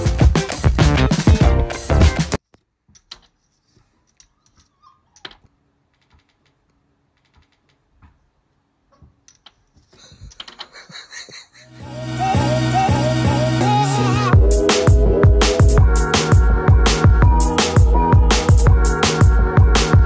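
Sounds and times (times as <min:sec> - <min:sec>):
light clicking and rattling: 0:02.5 - 0:08.4.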